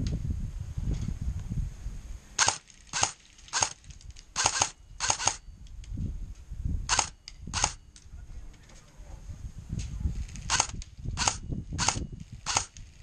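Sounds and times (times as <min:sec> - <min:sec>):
airsoft rifle shots: 0:02.4 - 0:03.8, 0:04.4 - 0:05.4, 0:06.9 - 0:07.8, 0:10.5 - 0:12.8.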